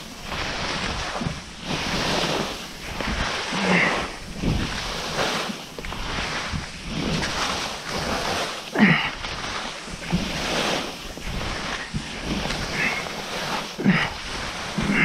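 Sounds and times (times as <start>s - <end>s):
wind buffeting microphone: 0.0s - 8.4s
skis scraping snow: 0.0s - 15.0s.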